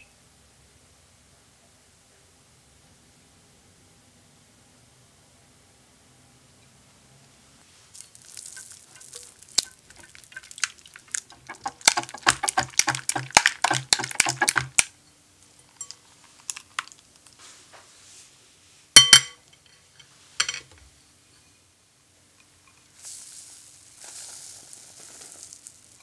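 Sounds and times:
whisk ticking against glass bowl: 8.9s - 14.9s
metal clink on glass bowl: 19.0s - 19.8s, 20.4s - 20.7s.

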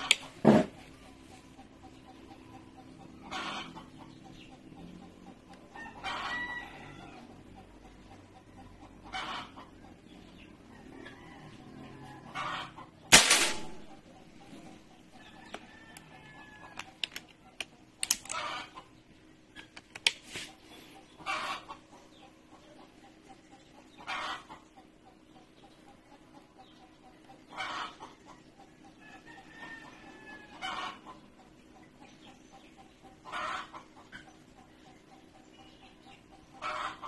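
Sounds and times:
chickens clucking: 0.0s - 37.0s
air rifle shot: 13.1s - 13.9s.

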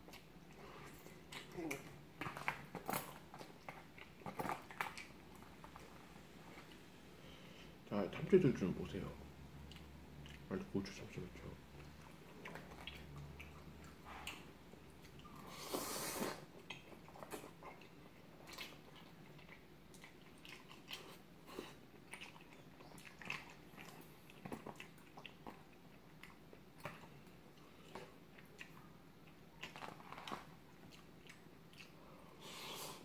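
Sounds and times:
chewing and mouth sounds: 0.0s - 6.9s, 9.6s - 32.3s.

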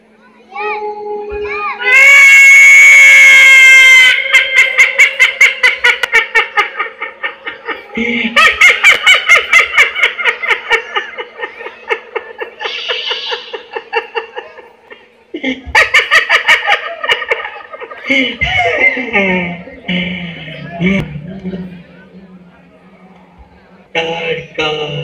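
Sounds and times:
loud rapid villain's cackle: 1.9s - 19.5s.

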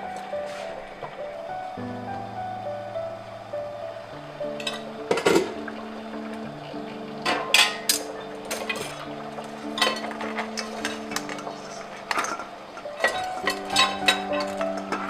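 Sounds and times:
soft background music: 0.0s - 15.0s
metal tongs clinking on cookware: 7.2s - 9.0s, 9.8s - 15.0s.

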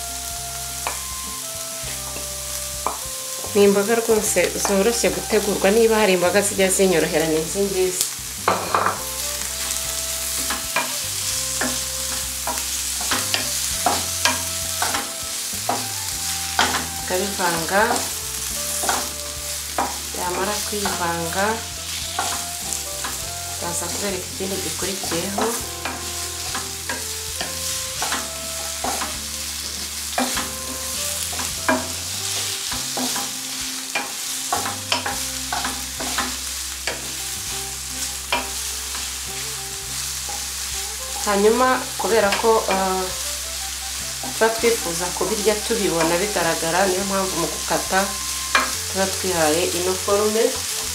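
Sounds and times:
onions sizzling in a frying pan: 0.0s - 50.9s
spatula knocking and scraping pan: 1.9s - 5.0s, 8.5s - 37.2s, 38.3s - 39.1s.

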